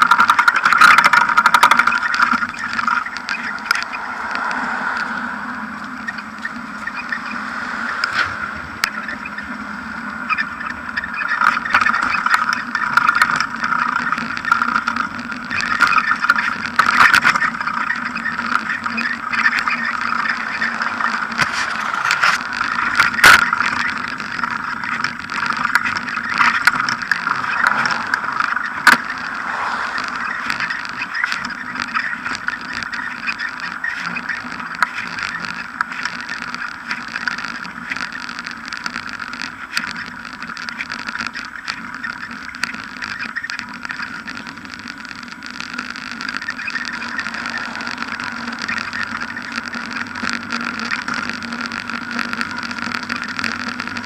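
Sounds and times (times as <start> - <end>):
bike knocks and rattles: 0.0 - 4.1, 8.1 - 54.0
tyre humming over paving: 0.0 - 54.0.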